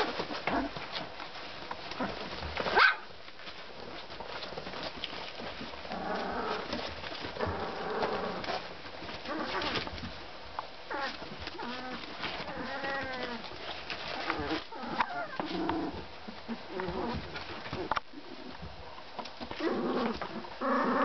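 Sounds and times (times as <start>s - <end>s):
puppies grumbling: 3.8s - 10.2s, 10.9s - 18.7s, 19.4s - 21.0s
puppies whining: 5.8s - 8.6s, 10.9s - 18.5s.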